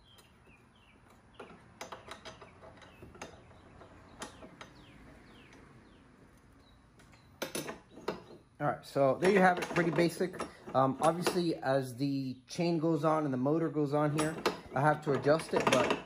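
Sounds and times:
hand tool clicking on metal bolts: 9.2s - 11.6s, 14.1s - 16.0s.

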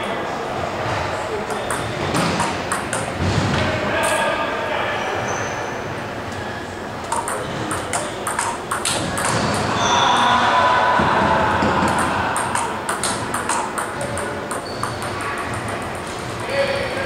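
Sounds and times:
table tennis ball clicking: 1.4s - 3.2s, 7.0s - 9.8s, 11.6s - 17.0s.

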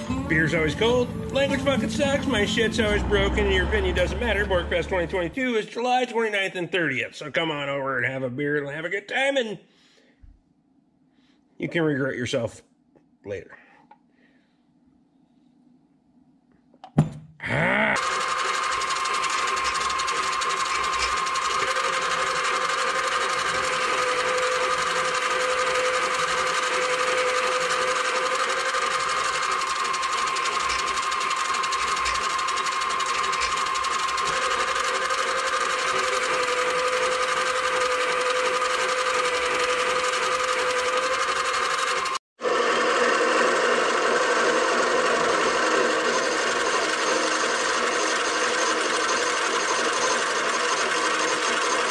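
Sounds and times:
metal lathe motor whining: 0.0s - 5.4s, 18.0s - 51.9s.

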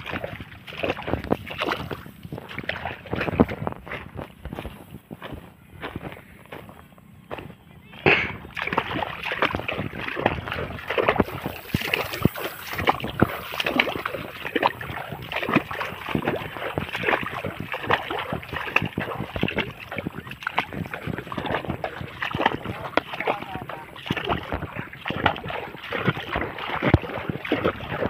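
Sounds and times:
rustling and sloshing through reeds: 0.0s - 5.0s, 8.5s - 28.0s.

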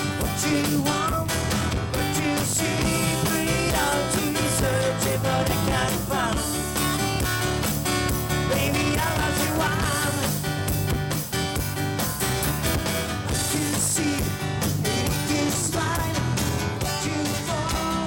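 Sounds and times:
person singing: 0.0s - 6.8s, 8.4s - 10.4s, 13.3s - 18.0s
electric bass: 0.0s - 18.0s
keyboards: 0.0s - 18.0s
strummed acoustic guitar: 0.0s - 18.0s.

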